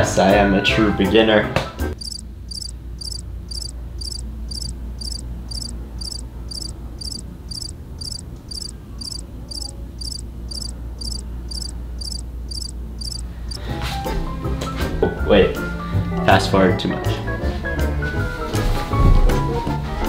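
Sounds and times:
cricket chirping: 0:02.0 - 0:13.6.

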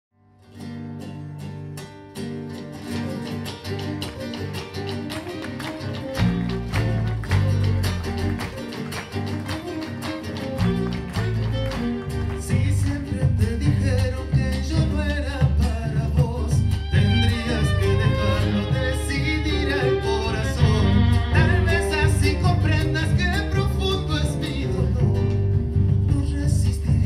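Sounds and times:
picked acoustic guitars: 0:00.2 - 0:27.0
live band instrumental: 0:02.2 - 0:27.0.

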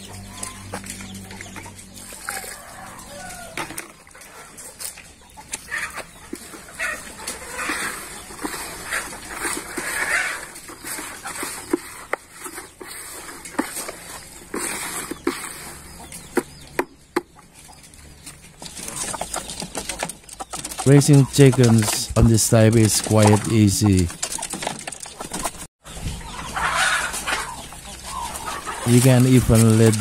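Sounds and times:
chickens clucking: 0:00.0 - 0:30.0
hand stirring damp feed in bucket: 0:06.3 - 0:16.4, 0:20.5 - 0:24.1, 0:28.7 - 0:30.0.

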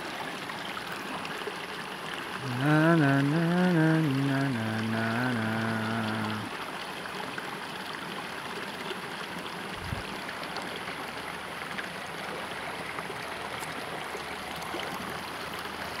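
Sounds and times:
person humming: 0:02.4 - 0:06.5
fast-flowing river rushing: 0:03.2 - 0:16.0.

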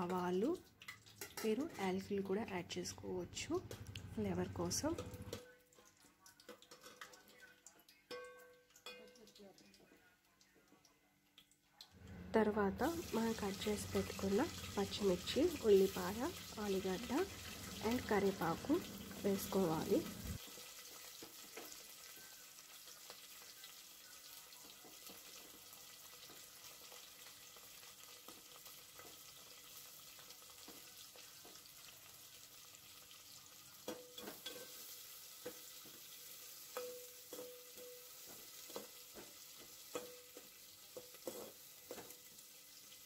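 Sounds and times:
food sizzling in oil: 0:00.0 - 0:03.5, 0:12.7 - 0:43.0.

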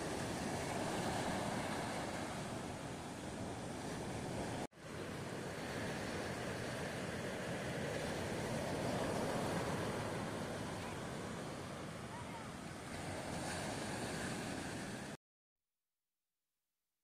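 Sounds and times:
sea surf breaking: 0:00.0 - 0:15.2.

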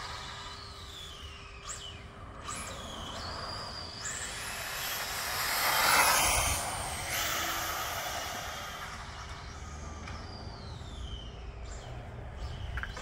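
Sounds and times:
toy truck motor whining: 0:00.0 - 0:11.9
tyres rushing on asphalt: 0:00.0 - 0:13.0.

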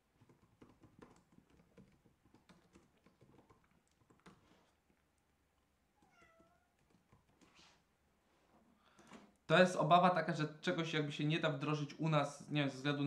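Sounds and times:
typing on computer keyboard: 0:00.2 - 0:05.0, 0:06.8 - 0:07.5.

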